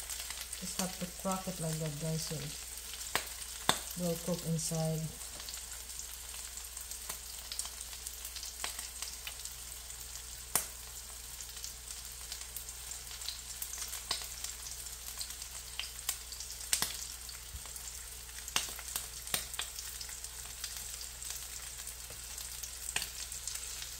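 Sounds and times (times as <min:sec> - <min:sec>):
omelette sizzling in a pan: 0:00.0 - 0:23.9
pops and crackles: 0:03.1 - 0:04.0, 0:18.5 - 0:19.7.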